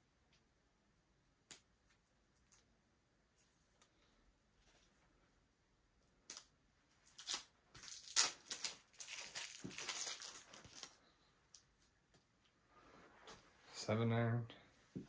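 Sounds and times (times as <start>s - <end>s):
plastic wrap crinkling and tearing: 7.0s - 11.0s.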